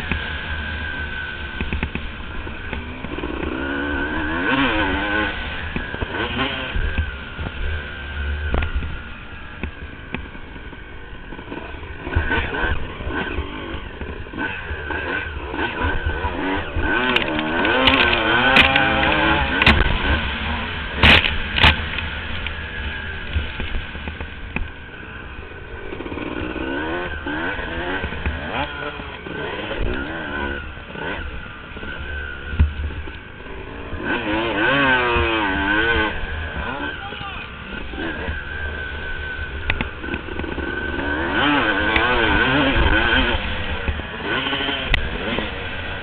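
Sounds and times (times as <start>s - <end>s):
motocross engine revving: 0.0s - 46.0s
wind and ground rumble: 0.0s - 46.0s
dirt striking camera: 16.7s - 24.8s.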